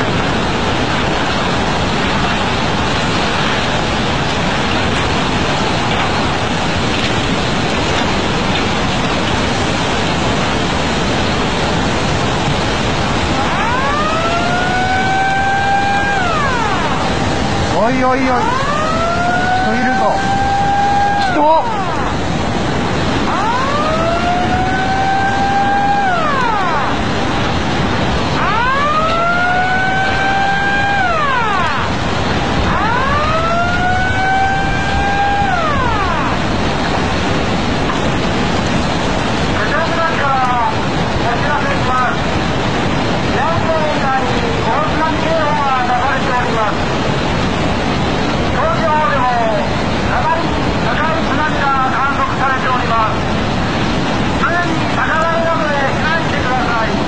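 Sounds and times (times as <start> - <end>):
floodwater surging and churning: 0.0 - 57.0
steady rush of noise: 0.0 - 57.0
warning siren wailing: 9.9 - 42.3.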